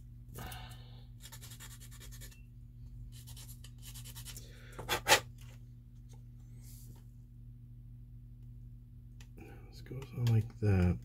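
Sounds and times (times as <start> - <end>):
sanding stick scraping plastic: 1.2 - 2.4.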